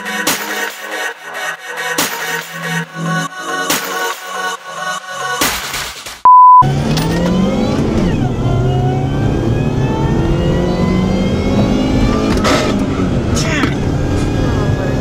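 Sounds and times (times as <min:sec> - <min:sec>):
car engine accelerating: 0:06.6 - 0:15.0.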